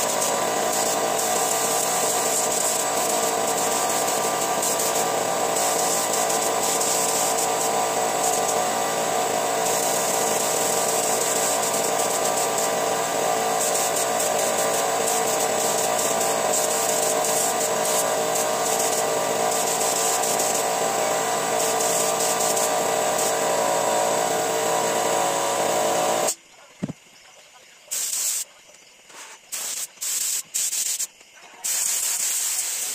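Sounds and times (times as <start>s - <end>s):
air compressor droning: 0.0s - 26.4s
spray gun hissing: 0.0s - 26.4s, 27.9s - 28.5s, 29.1s - 32.9s.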